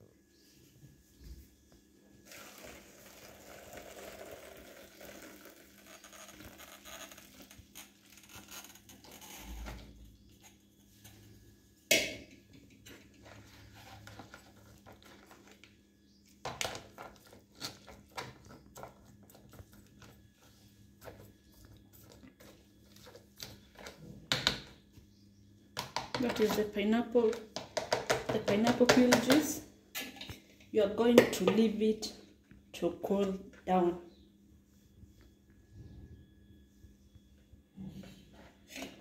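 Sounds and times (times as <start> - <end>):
liquid pouring through strainer: 2.3 - 7.5.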